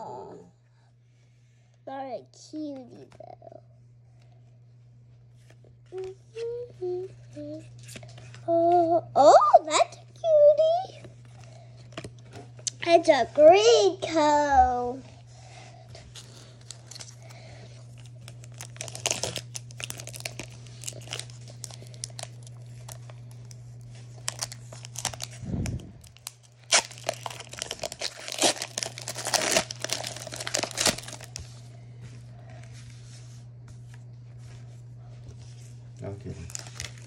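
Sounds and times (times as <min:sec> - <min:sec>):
steady low hum: 0:00.0 - 0:37.0
foil pack tearing and crinkling: 0:16.2 - 0:17.3, 0:17.9 - 0:31.5, 0:36.3 - 0:37.0.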